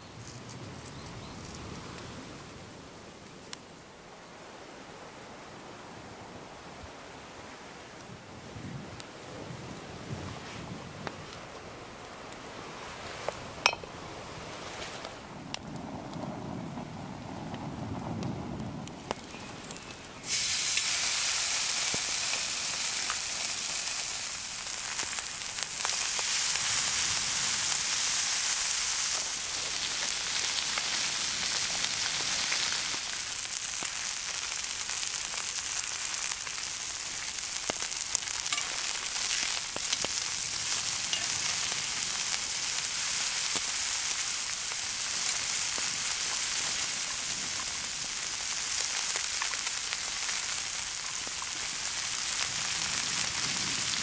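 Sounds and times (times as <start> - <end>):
steaks sizzling on a griddle: 20.2 - 54.0.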